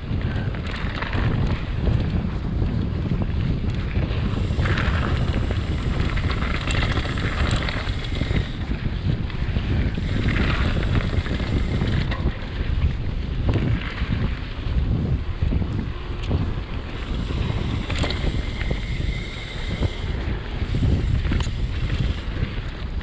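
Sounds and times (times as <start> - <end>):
wind buffeting microphone: 0.0 - 23.0
tyres hissing on trail: 4.2 - 9.1, 9.8 - 12.6, 16.9 - 22.8.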